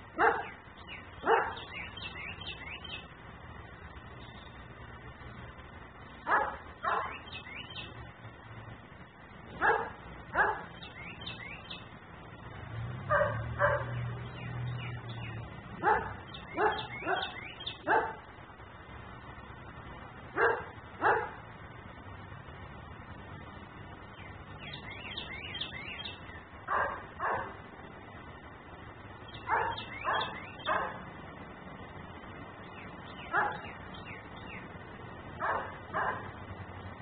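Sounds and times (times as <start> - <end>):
dog barking: 0.2 - 0.6, 1.2 - 1.7, 6.3 - 7.2, 9.6 - 10.7, 13.1 - 14.0, 15.8 - 18.3, 20.4 - 21.4, 26.7 - 27.6, 29.5 - 31.0, 33.3 - 33.7, 35.4 - 36.4.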